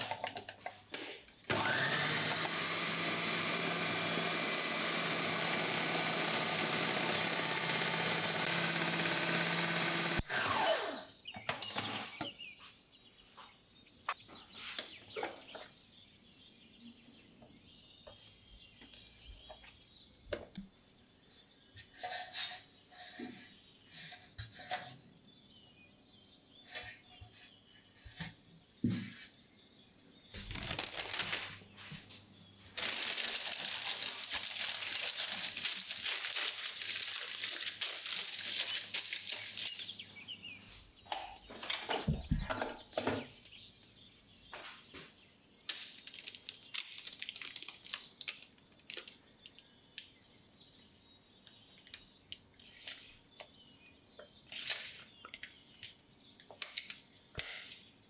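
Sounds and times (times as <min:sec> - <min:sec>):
baking paper crinkling and tearing: 0:30.4 - 0:32.0, 0:32.7 - 0:40.0, 0:45.7 - 0:49.2.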